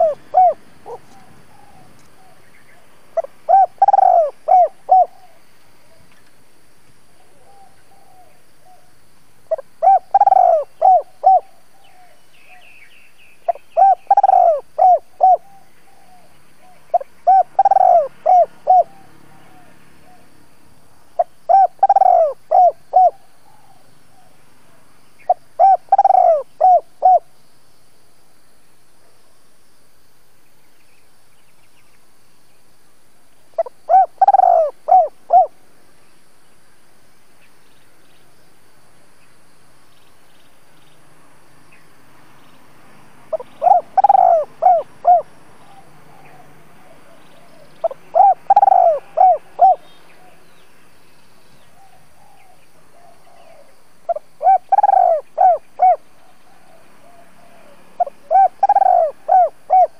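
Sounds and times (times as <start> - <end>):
dove cooing: 0.0 - 6.1, 7.2 - 8.9, 9.5 - 12.6, 13.5 - 20.3, 21.2 - 27.3, 33.6 - 35.6, 43.3 - 50.4, 51.8 - 59.9.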